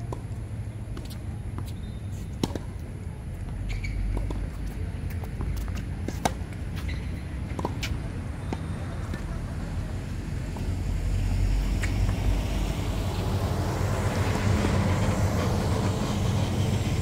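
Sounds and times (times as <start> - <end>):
steady low rumble: 9.3 - 17.0.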